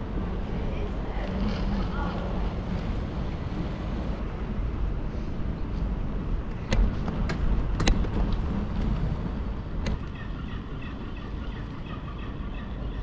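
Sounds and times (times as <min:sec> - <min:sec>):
bike rattles and knocks: 0:06.5 - 0:10.1.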